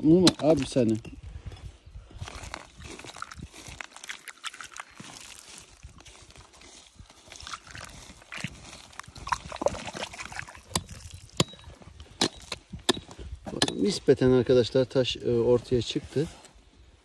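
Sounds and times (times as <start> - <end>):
stone and gravel clicks: 0.2 - 1.1, 2.4 - 5.8, 10.0 - 13.8
water splashing and trickling: 2.2 - 11.4.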